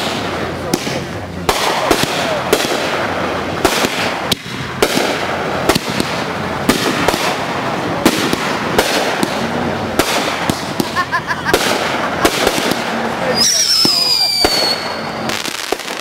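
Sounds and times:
firework bangs: 0.0s - 16.0s
fireworks crackling and hissing: 0.0s - 16.0s.

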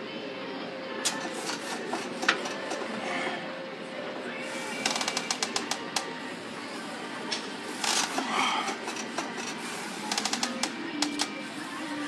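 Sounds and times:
leg press machine clicking and rattling: 1.1s - 3.0s, 4.8s - 6.1s, 7.7s - 11.3s.

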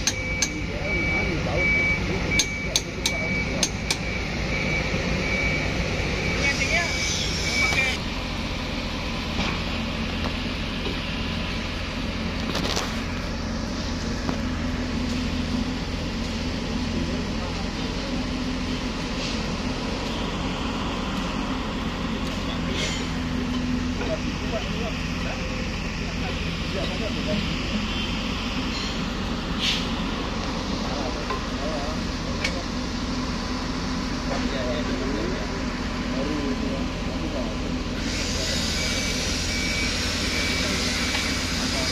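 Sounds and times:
heavy machine engine humming: 0.0s - 41.9s
brief hiss: 29.6s - 30.0s.

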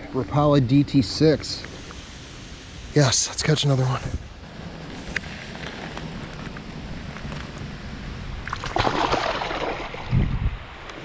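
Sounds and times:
fish splashing into water: 8.4s - 10.1s
water sloshing: 8.4s - 10.2s.

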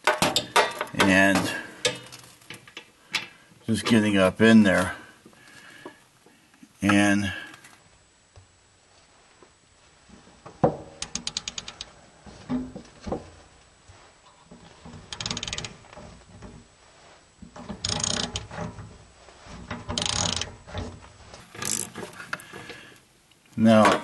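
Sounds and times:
ratchet clicking: 11.0s - 11.9s, 15.1s - 15.8s, 17.8s - 18.5s, 19.9s - 20.5s, 21.5s - 22.1s.

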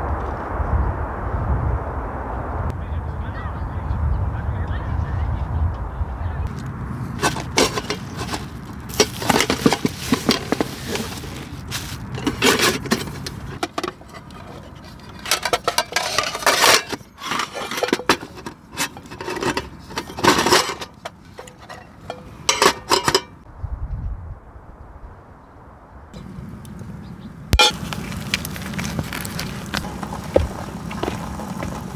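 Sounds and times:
mesh bag rustling: 7.2s - 23.2s
pan and lid clinking and scraping: 7.2s - 23.4s, 27.6s - 28.0s.

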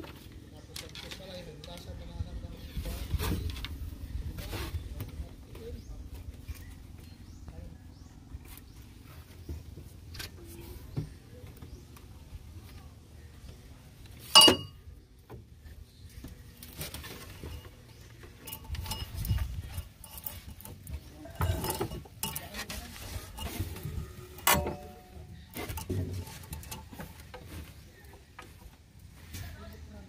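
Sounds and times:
metal tools clinking: 14.3s - 14.8s, 18.4s - 27.3s.

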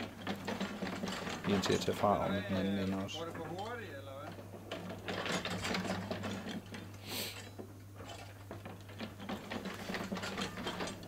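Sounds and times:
mechanical clatter of gears: 0.0s - 11.0s
short hiss: 7.0s - 7.4s.

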